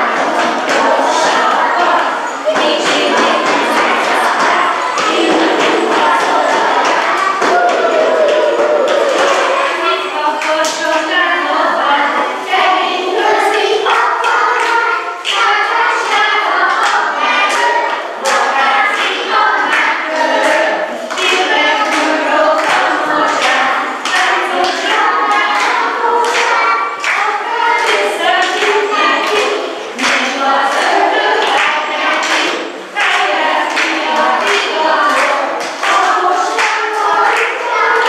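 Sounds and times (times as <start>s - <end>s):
sharp taps keeping a beat: 0.0s - 8.3s
children singing in unison: 0.0s - 38.0s.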